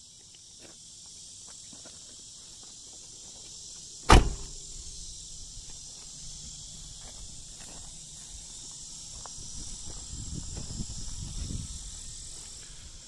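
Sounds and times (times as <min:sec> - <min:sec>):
car door slamming: 0:04.0 - 0:04.6.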